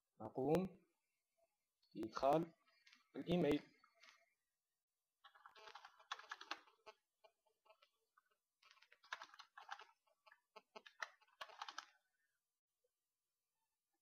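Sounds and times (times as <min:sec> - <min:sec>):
typing on computer keyboard: 0:05.3 - 0:06.8, 0:08.6 - 0:10.0, 0:10.8 - 0:11.9.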